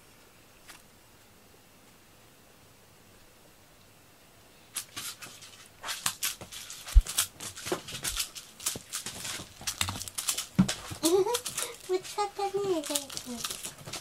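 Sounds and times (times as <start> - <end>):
cat claws scratching sisal: 4.8 - 14.0.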